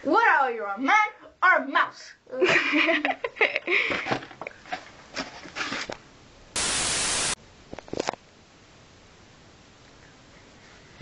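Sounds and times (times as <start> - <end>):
white noise static burst: 6.5 - 7.4.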